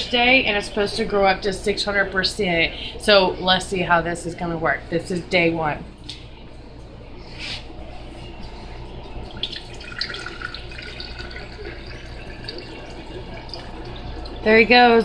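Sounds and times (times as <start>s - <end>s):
water pouring into a glass: 8.5s - 15.0s.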